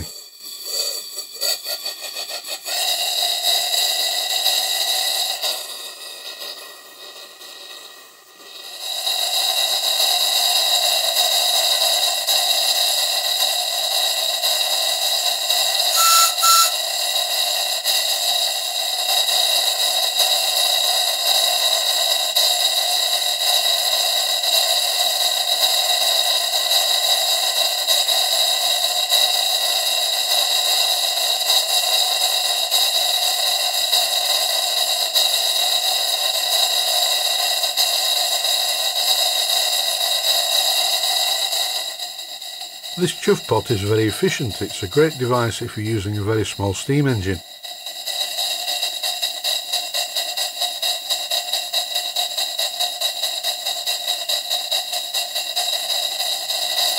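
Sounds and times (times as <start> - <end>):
steam engine exhaust noise: 0.0 - 19.0
short tone with clicks: 16.0 - 16.8.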